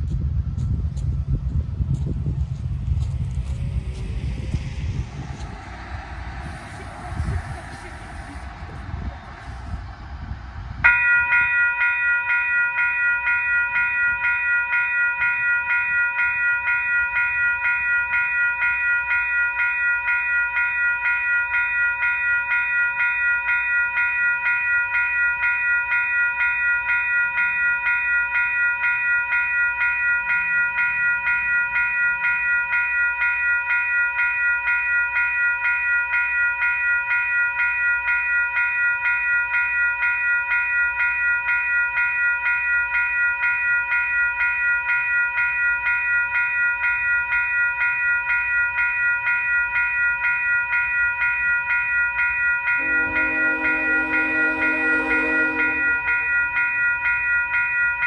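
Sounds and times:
faint low train rumble: 0.0s - 13.0s, 52.8s - 56.4s
railway crossing bell ringing: 1.4s - 58.0s.

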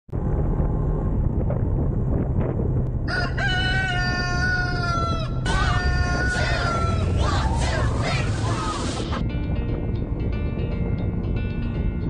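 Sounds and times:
steady low rumble: 0.1s - 12.0s
rooster crowing: 3.1s - 7.8s.

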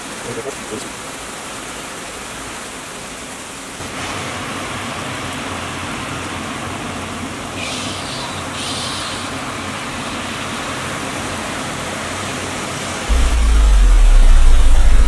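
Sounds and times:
heavy rain pouring: 0.0s - 15.0s
low rumble of traffic: 13.1s - 15.0s.

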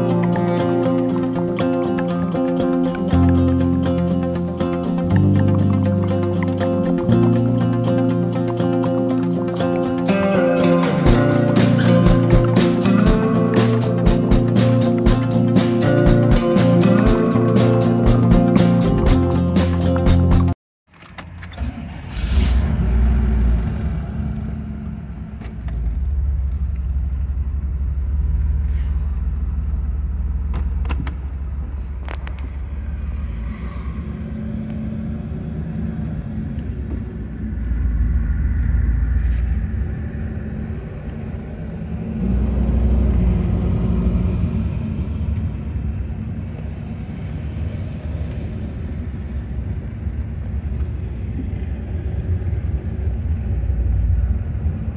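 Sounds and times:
car engine low rumble: 10.8s - 54.9s.

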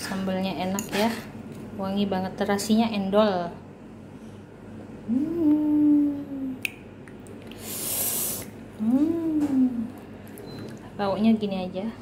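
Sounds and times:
woman humming appreciatively: 5.0s - 6.7s, 8.8s - 10.0s
short breathy hiss: 7.6s - 8.5s.

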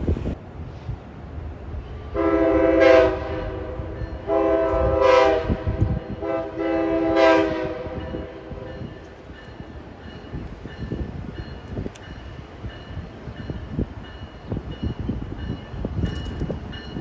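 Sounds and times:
train rumbling: 0.0s - 17.0s
locomotive air horn blasts: 1.9s - 8.7s.

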